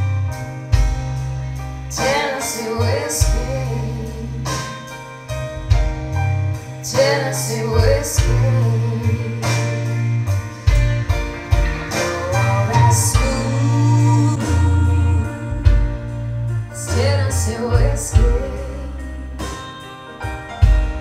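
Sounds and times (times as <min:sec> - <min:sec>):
band with deep bass and drums: 0:00.0 - 0:21.0
person singing: 0:01.9 - 0:04.9, 0:06.8 - 0:09.9, 0:11.8 - 0:19.5.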